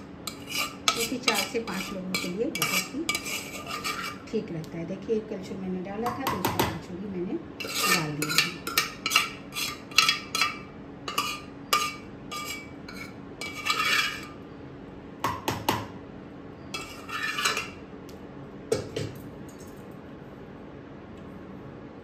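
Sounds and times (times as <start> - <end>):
faint steady hum: 0.0 - 22.0
metal ladle scraping steel pot: 0.3 - 4.3, 7.6 - 14.4, 16.7 - 17.8.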